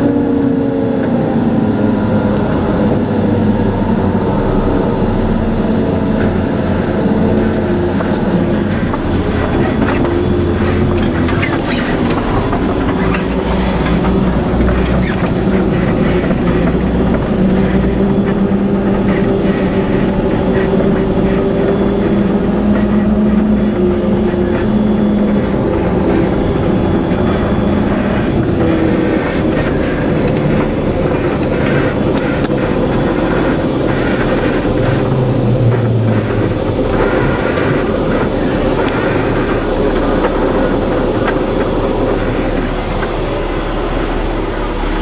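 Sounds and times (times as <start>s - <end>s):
truck engine and road hum: 0.0s - 45.0s
vehicle body rattles: 2.4s - 45.0s.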